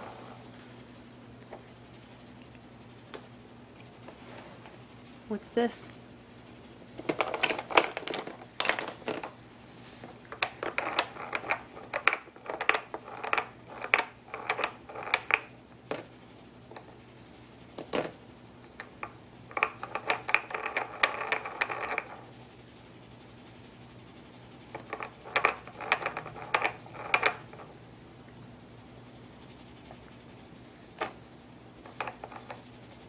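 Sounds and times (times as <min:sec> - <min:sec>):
plastic toy clicking and rattling: 0:10.4 - 0:15.5, 0:19.5 - 0:22.2, 0:24.8 - 0:27.7.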